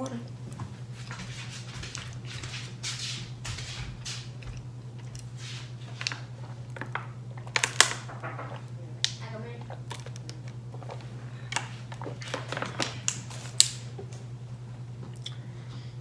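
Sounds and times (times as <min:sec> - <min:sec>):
steady low hum: 0:00.0 - 0:16.0
plastic bottle clicking and crackling: 0:06.0 - 0:13.8
person swallowing: 0:15.0 - 0:15.4.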